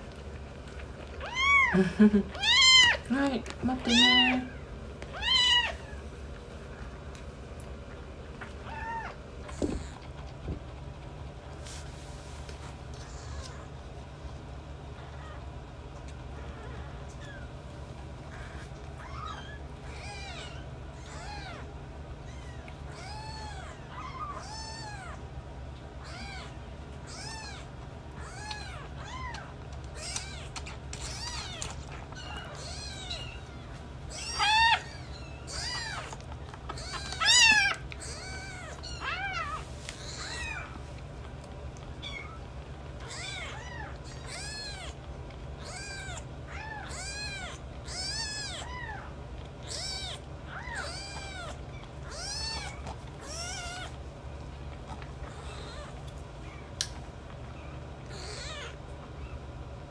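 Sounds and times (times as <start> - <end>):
kitten mewing: 1.2 - 3.0, 26.0 - 40.8, 45.6 - 54.0.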